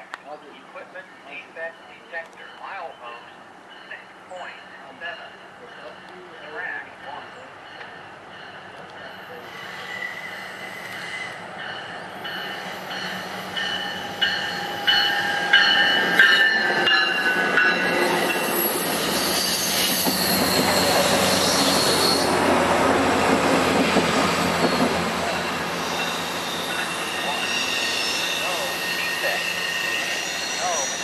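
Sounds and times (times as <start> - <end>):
train rumbling past: 1.0 - 31.0
train wheels squealing: 8.4 - 17.2, 17.8 - 22.4, 24.6 - 31.0.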